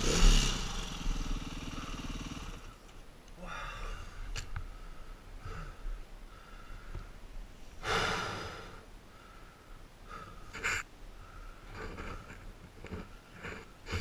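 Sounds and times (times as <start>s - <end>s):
person breathing heavily: 3.4s - 14.0s.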